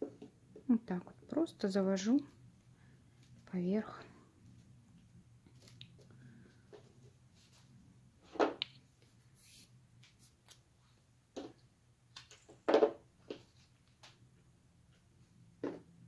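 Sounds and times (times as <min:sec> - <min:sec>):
paper tubes rustling and scraping: 0:09.0 - 0:10.6.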